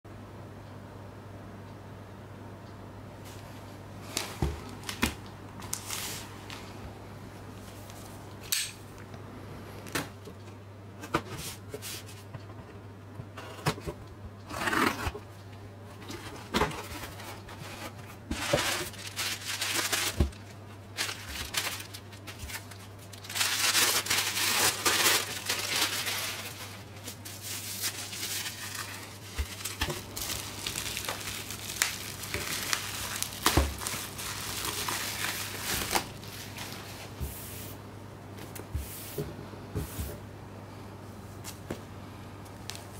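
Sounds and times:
low steady hum: 0:00.1 - 0:42.9
bubble wrap rustling: 0:04.0 - 0:06.8, 0:16.2 - 0:37.7
wrapping paper crinkling: 0:04.0 - 0:06.8, 0:16.8 - 0:37.2
paper tearing: 0:22.6 - 0:36.2.

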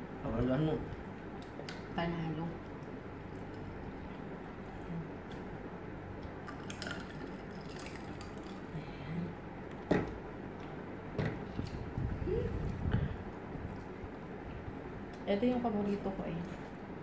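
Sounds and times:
cola pouring into glass: 0:06.4 - 0:08.7.

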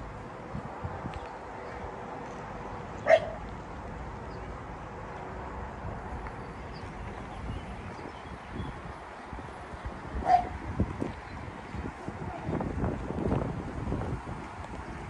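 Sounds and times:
dog barking: 0:03.0 - 0:03.4, 0:10.2 - 0:10.5.

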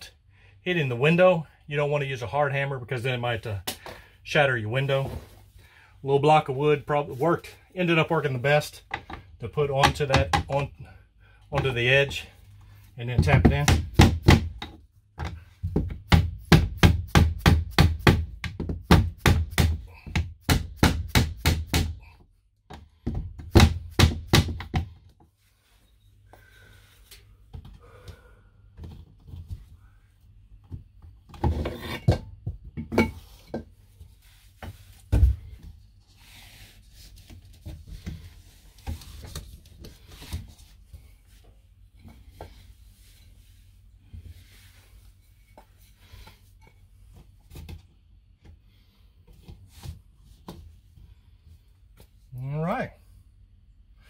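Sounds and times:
rubbing and handling at window: 0:33.2 - 0:48.1.

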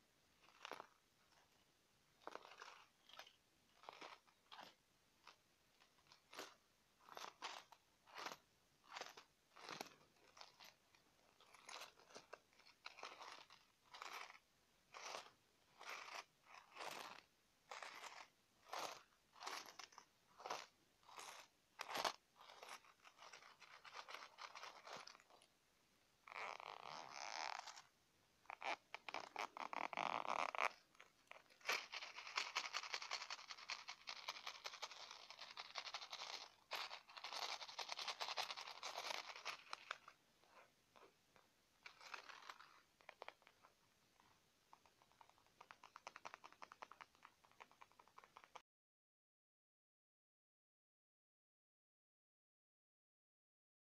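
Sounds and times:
coin purse crinkling and rustling: 0:00.4 - 0:01.5, 0:02.2 - 0:25.5, 0:28.5 - 0:40.6, 0:41.8 - 0:43.6.

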